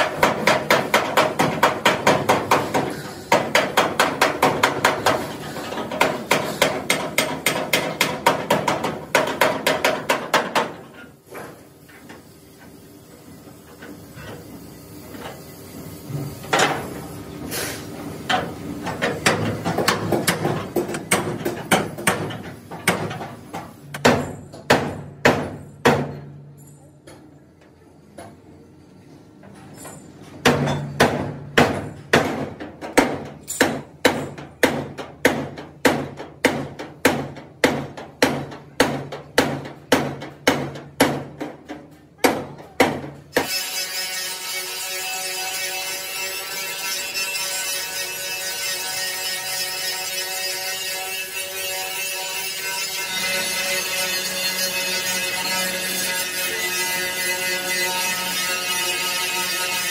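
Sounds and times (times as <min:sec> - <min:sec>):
hammer striking steel frame: 0:00.0 - 0:11.6, 0:18.3 - 0:27.3, 0:29.8 - 0:59.9.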